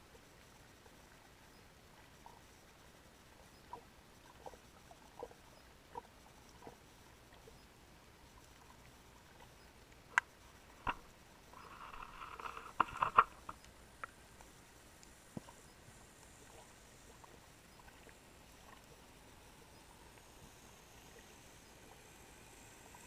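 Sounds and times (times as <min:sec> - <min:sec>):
underwater crackling: 0:08.4 - 0:22.0
sharp underwater clicks: 0:09.4 - 0:15.7.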